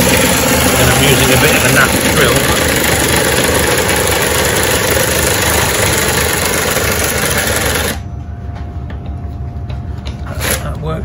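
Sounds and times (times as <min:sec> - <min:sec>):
cordless driver running: 0:00.0 - 0:08.0.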